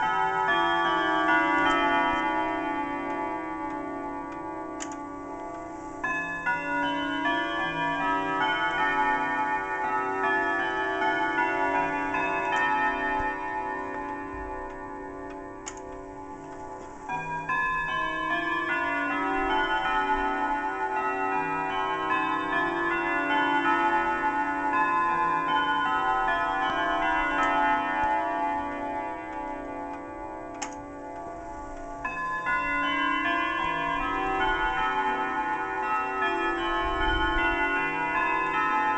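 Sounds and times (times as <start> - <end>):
wall clock chime melody: 0.0 - 38.9.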